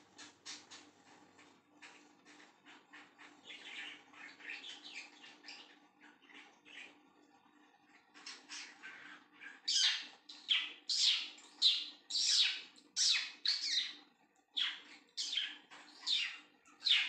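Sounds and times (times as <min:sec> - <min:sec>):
budgerigars squawking: 0:14.6 - 0:17.0.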